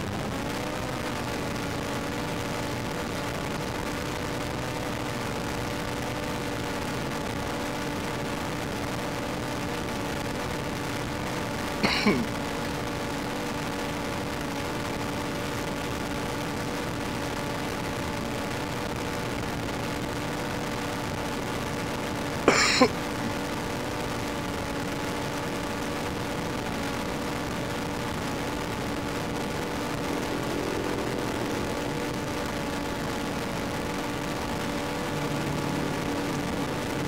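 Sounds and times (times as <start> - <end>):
steady motor hum: 21.8 - 37.0.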